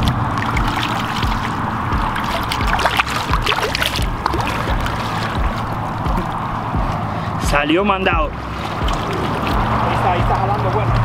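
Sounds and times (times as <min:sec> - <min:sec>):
small splashes and bubbling: 0:00.0 - 0:06.4, 0:08.3 - 0:10.0
water sloshing against rocks: 0:00.0 - 0:07.4, 0:08.0 - 0:11.0
steady low rumble: 0:00.0 - 0:11.0.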